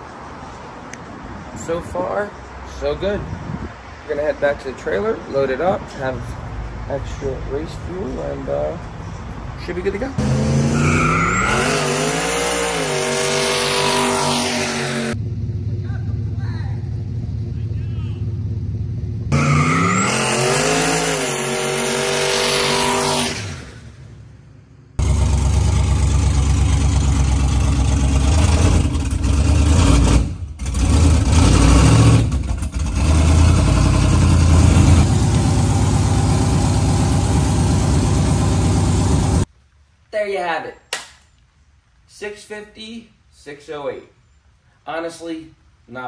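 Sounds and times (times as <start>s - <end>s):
pickup engine revving: 10.2s - 24.2s, 25.0s - 39.4s.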